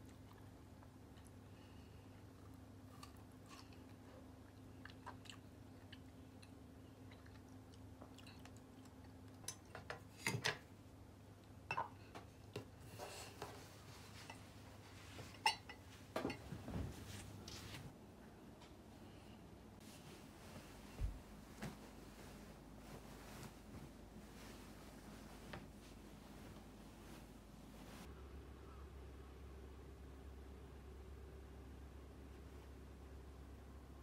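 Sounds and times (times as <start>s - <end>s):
tableware clinking and knocking: 15.3s - 16.5s.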